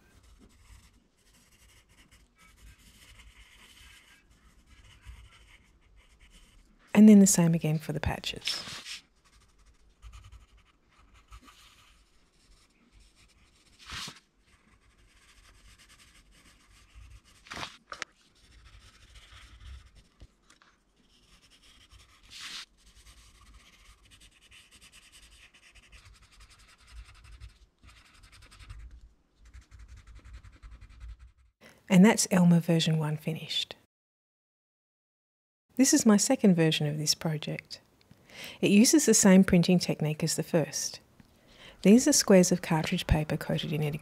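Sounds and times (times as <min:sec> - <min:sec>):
pencil scratching on paper: 0:00.1 - 0:06.7, 0:08.6 - 0:20.3, 0:21.0 - 0:31.5.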